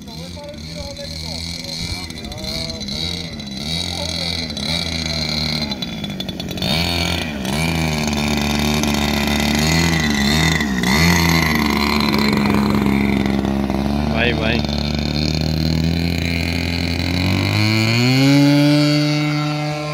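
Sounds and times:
model plane engine running: 0.0 - 19.9.

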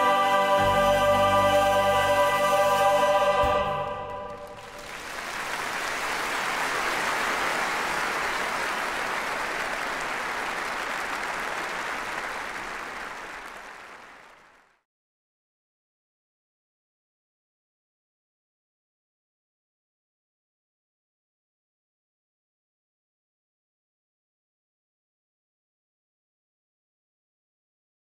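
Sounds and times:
choir with instruments: 0.0 - 4.9
audience applause: 4.0 - 14.8.

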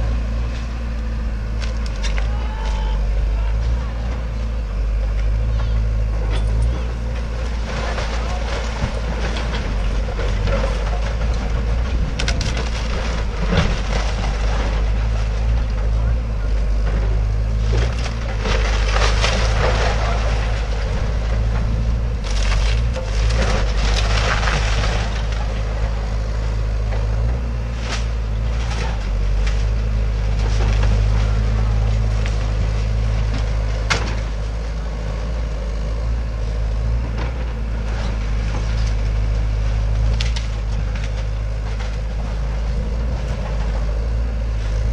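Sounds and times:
excavator diesel engine running: 0.0 - 44.9
timber cracking and splintering: 1.6 - 2.9, 7.2 - 15.8, 17.6 - 27.1, 27.7 - 34.5, 37.2 - 42.4
debris crashing down: 6.1 - 16.1, 16.7 - 34.5.

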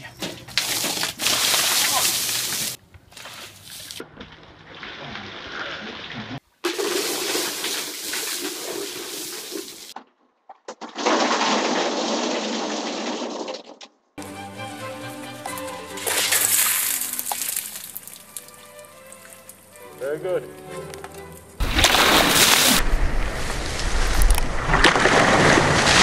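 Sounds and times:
water splashing and gushing: 0.6 - 10.0, 16.0 - 19.8, 21.6 - 26.0
music: 14.2 - 21.6.

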